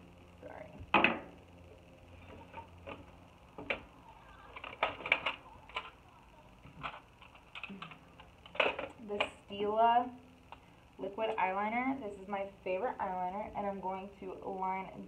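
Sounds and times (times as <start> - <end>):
plastic items clicking and knocking: 4.5 - 5.9, 6.6 - 9.3.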